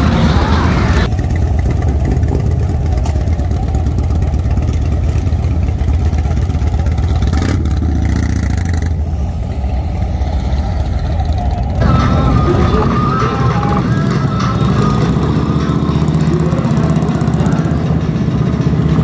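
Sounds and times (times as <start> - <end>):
motorcycles rumbling past: 0.0 - 19.0.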